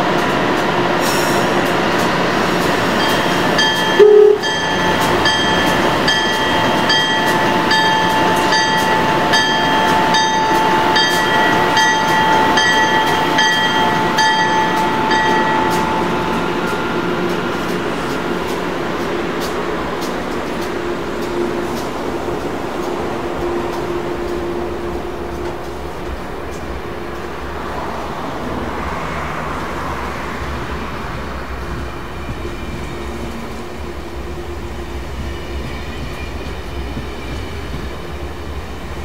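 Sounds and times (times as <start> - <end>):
train whine and rumble: 0.0 - 39.0
ringing strike: 3.0 - 17.4
train horn toot: 4.0 - 4.6.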